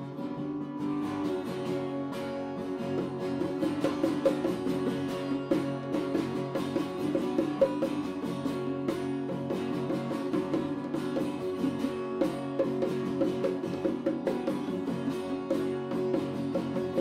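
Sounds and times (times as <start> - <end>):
acoustic guitar picking: 0.0 - 17.0
bongos tapping: 2.8 - 17.0.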